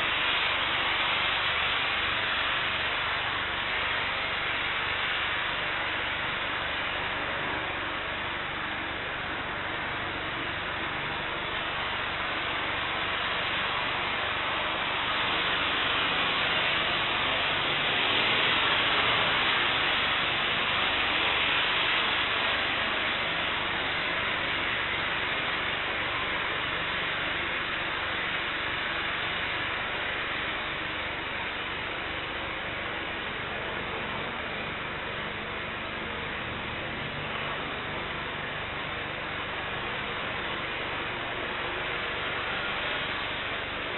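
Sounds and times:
distant jet engines roaring: 0:00.0 - 0:43.9.

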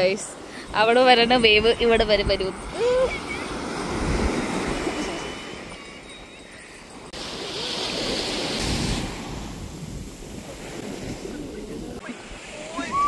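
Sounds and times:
sea waves breaking on beach: 0:00.0 - 0:13.0.

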